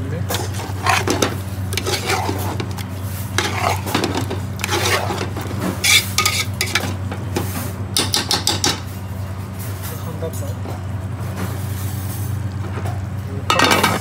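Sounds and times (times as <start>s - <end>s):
utensil scraping metal pot: 0.3s - 7.0s.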